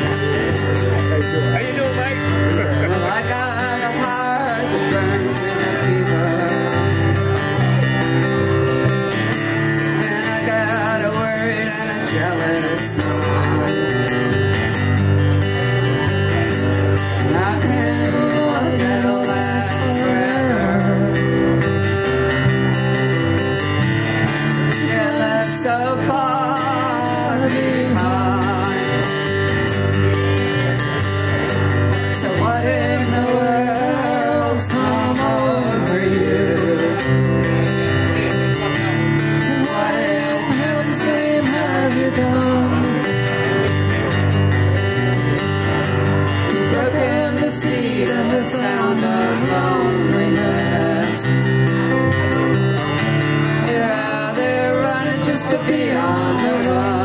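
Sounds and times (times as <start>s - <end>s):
acoustic guitar: 0.0s - 57.0s
walking bass line: 0.0s - 57.0s
person singing: 17.2s - 21.5s, 32.0s - 37.6s, 38.9s - 43.5s, 46.5s - 51.6s, 53.5s - 57.0s.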